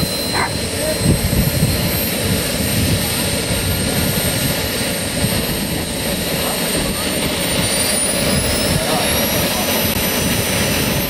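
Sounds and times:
model helicopter drive whine: 0.0s - 11.0s.

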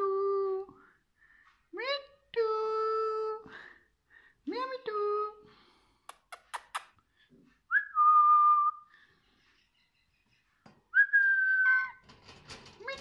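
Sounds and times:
whistled notes: 10.9s - 12.0s.

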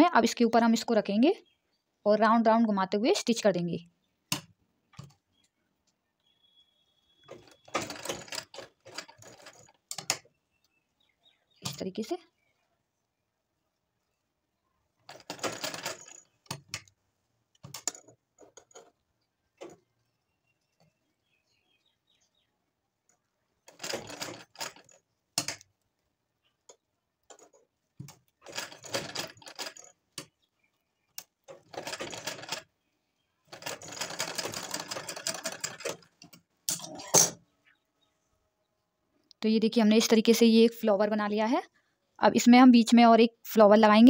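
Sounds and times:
sewing machine stitching: 7.2s - 10.2s, 15.1s - 16.8s, 23.7s - 25.6s, 27.4s - 29.9s, 31.5s - 32.7s, 33.5s - 36.2s.

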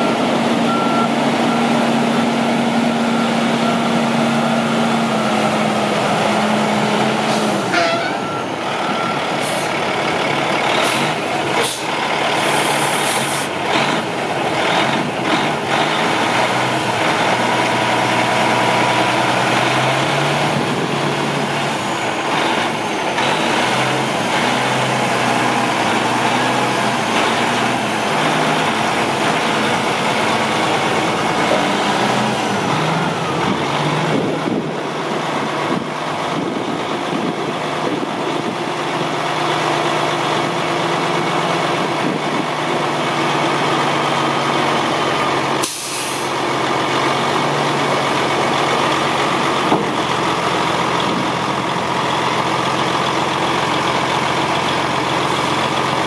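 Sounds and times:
diesel truck engine idling: 0.0s - 56.0s.

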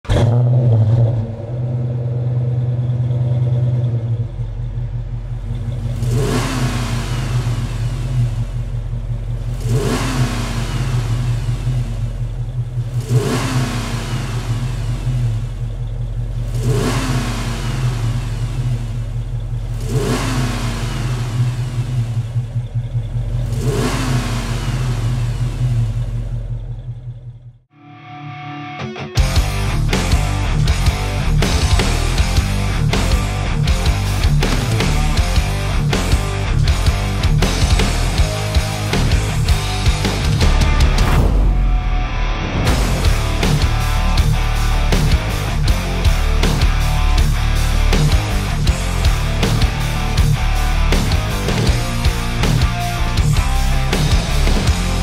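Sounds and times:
car engine idling and revving: 0.0s - 27.7s, 29.2s - 55.0s.

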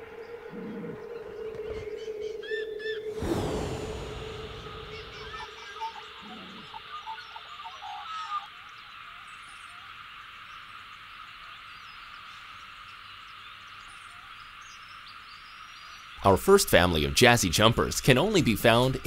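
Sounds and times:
chorus of calling animals: 0.0s - 10.0s.

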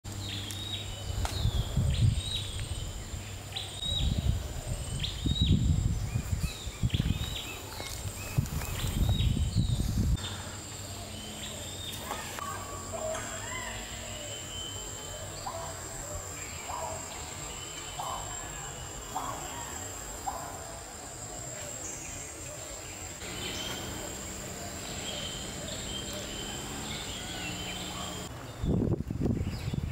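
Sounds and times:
high insect drone: 0.2s - 28.3s
bird chirps: 21.5s - 28.8s.

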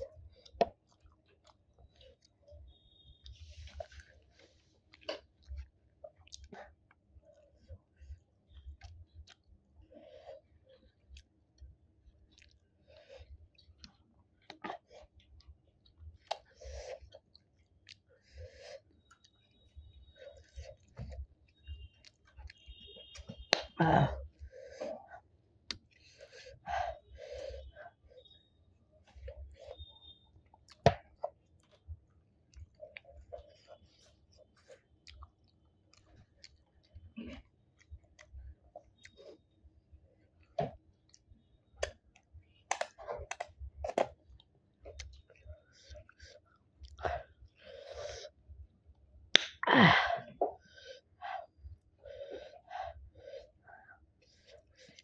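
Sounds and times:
person chewing food: 0.0s - 55.0s.

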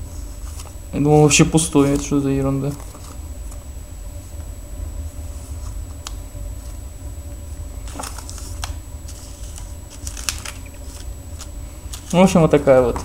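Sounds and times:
low hum: 0.0s - 13.0s
plastic bags crinkling: 7.8s - 11.1s.

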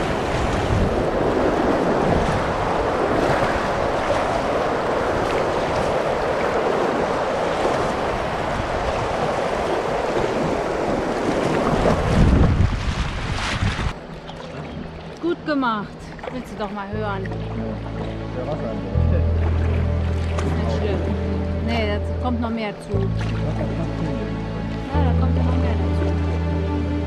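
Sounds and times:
river water rushing and splashing: 0.0s - 27.0s
low rumble: 17.0s - 27.0s.

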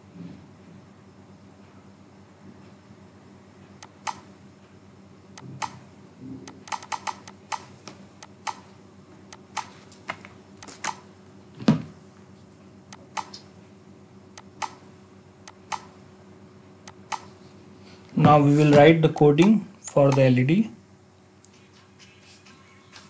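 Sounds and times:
mouse and keyboard clicks: 6.5s - 7.7s.

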